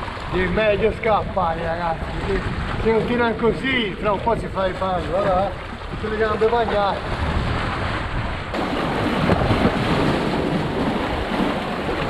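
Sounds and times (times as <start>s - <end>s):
wind buffeting microphone: 0.0s - 12.0s
waves splashing on rocks: 4.9s - 12.0s.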